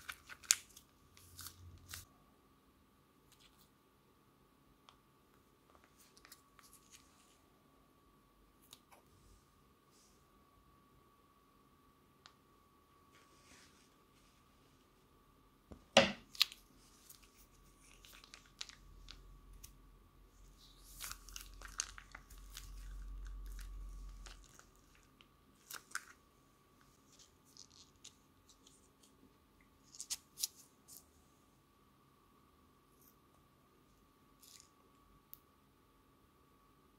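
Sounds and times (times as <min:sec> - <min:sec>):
plastic piping bag crinkling: 0:00.0 - 0:02.1, 0:05.8 - 0:07.4, 0:16.2 - 0:31.0
wet slime squishing: 0:16.2 - 0:19.8, 0:20.4 - 0:29.2.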